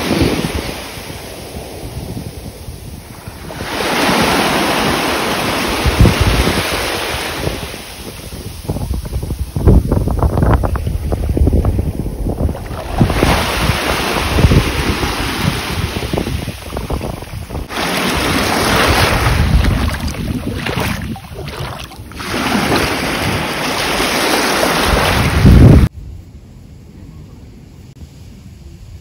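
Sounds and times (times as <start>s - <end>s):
sea waves washing ashore: 0.0s - 25.9s
wind gusting on microphone: 0.0s - 26.2s.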